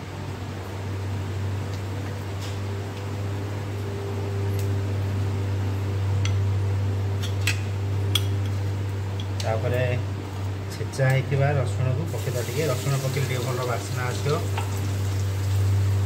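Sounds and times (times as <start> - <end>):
steady low hum: 0.0 - 16.0
seeds sizzling in hot oil: 12.1 - 16.0
oil popping: 12.6 - 15.7.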